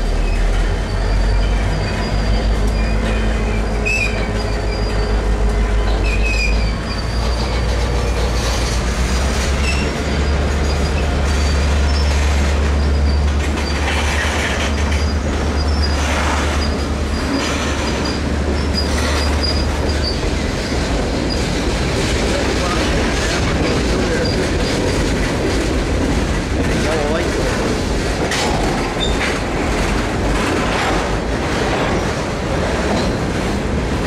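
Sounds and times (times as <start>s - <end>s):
rail joint clacks: 0.0s - 34.0s
train wheels rumbling on rails: 0.0s - 34.0s
wheel squeals: 0.1s - 8.7s, 9.4s - 21.4s.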